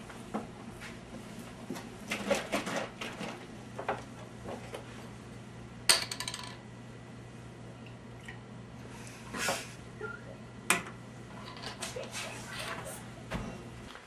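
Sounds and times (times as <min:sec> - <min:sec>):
low steady hum: 0:00.0 - 0:14.0
tableware clinking and knocking: 0:05.9 - 0:06.6.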